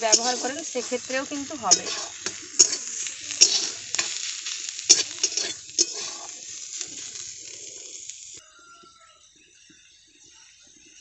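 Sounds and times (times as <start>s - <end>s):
utensil scraping a pan: 0.0s - 8.1s
vegetables sizzling in oil: 0.0s - 8.5s.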